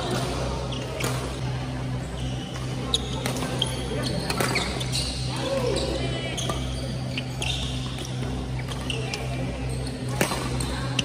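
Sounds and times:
steady low hum: 0.0 - 11.0
rackets hitting shuttlecock: 0.1 - 1.3, 2.6 - 4.8, 10.1 - 10.7.

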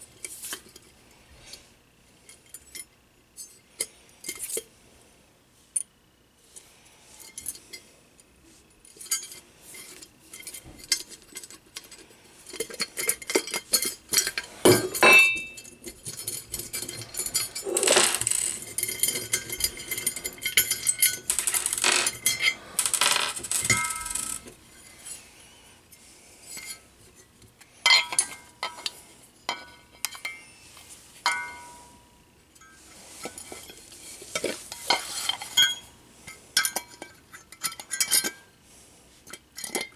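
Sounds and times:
rubbing and scraping: 16.0 - 25.2.

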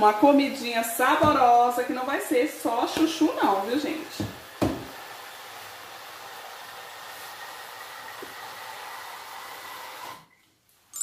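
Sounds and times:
tap water pouring into kettle: 4.0 - 10.3.

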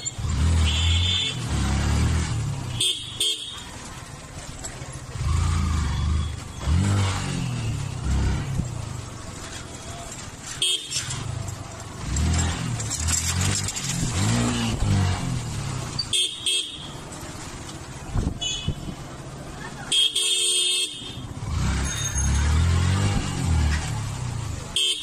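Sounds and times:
motorcycle engine revving: 0.0 - 17.6, 21.2 - 24.9
vehicle horns honking: 0.5 - 1.6, 2.7 - 3.7, 10.5 - 11.2, 16.1 - 17.0, 18.4 - 19.0, 19.9 - 22.4, 24.7 - 25.0.

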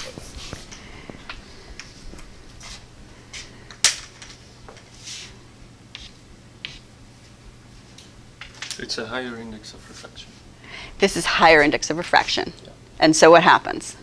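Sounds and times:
faint steady hum: 0.0 - 14.0
chalk tapping on chalkboard: 5.9 - 6.8.

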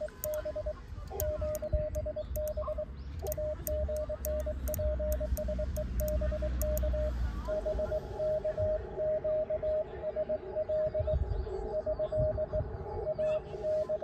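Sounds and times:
morse key clicks: 0.0 - 6.9
received morse code signal: 0.0 - 11.1
morse code sidetone beeps: 0.0 - 14.0.

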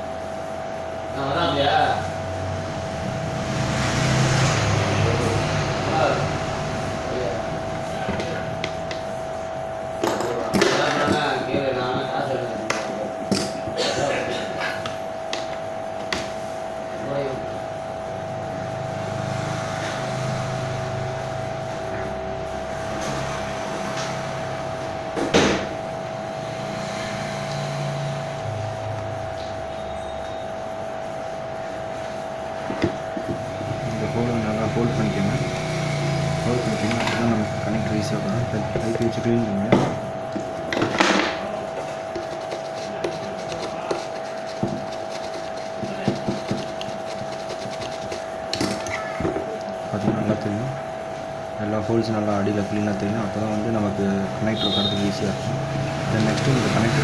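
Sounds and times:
high-pitched hum: 0.0 - 57.0
sharp knock: 25.2 - 25.8
small brush scrubbing: 41.6 - 50.4.

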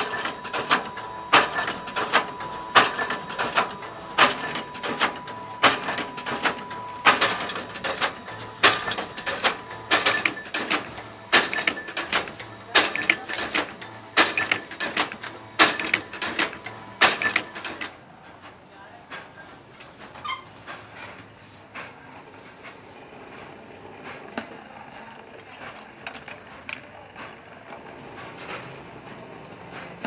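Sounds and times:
welding machine clacking: 0.0 - 21.1.

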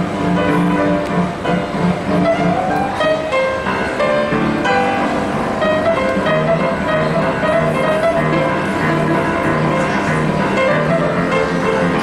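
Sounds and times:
upright piano piece: 0.0 - 12.0.

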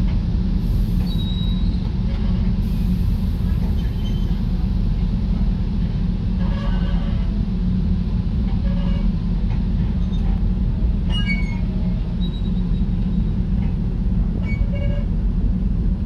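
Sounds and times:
train cars rumbling on rails: 0.0 - 16.0
train wheel squeals: 0.9 - 2.5, 3.6 - 4.5, 6.4 - 7.3, 8.6 - 9.2, 10.0 - 10.4, 11.0 - 13.4, 14.4 - 15.2.

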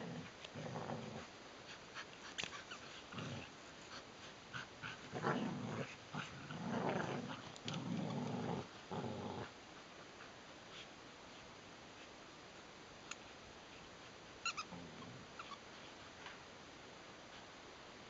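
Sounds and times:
dogs play-growling: 0.0 - 9.6, 14.4 - 16.3.

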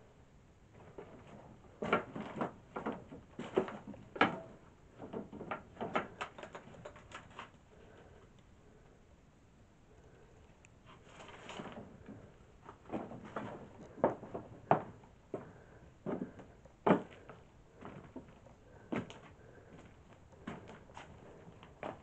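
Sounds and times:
knocks on wooden boards: 12.9 - 17.3.

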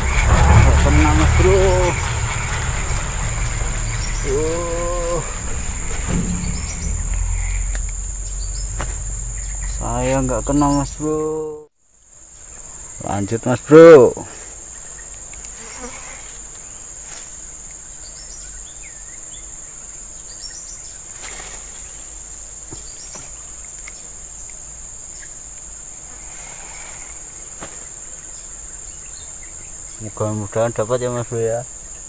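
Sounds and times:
insects buzzing drone: 0.0 - 32.0.

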